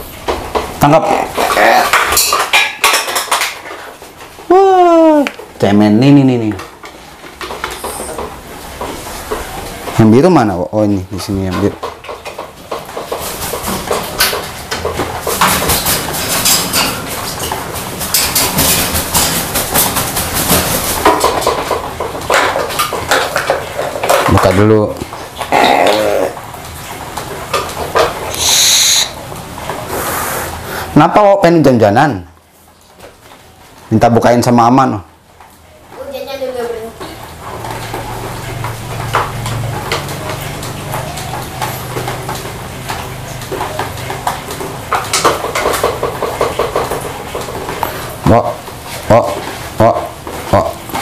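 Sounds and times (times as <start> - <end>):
clatter of small hard knocks: 11.5 - 26.1, 37.0 - 48.6.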